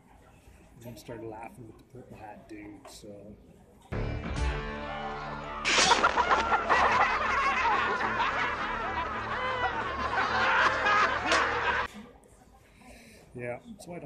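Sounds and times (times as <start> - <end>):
film music: 4.0 - 11.7
crowd of creatures laughing: 5.7 - 11.9.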